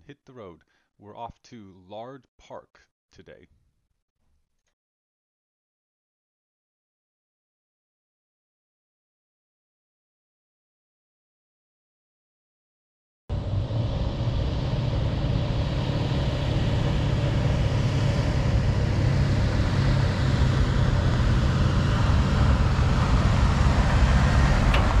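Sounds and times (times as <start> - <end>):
pickup truck engine running: 13.3 - 25.0.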